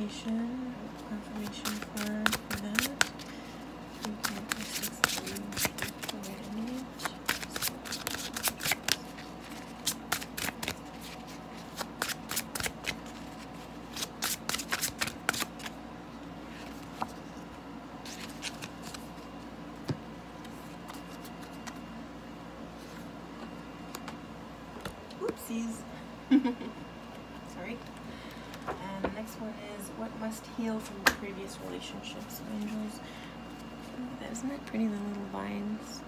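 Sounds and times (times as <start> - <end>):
cards being shuffled: 1.3 - 3.3, 3.9 - 15.8, 18.0 - 19.3.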